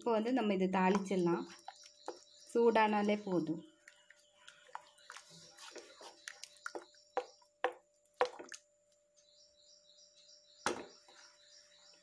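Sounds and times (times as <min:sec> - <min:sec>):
wooden spoon stirring thick gravy: 0:00.9 - 0:02.6, 0:03.7 - 0:08.6.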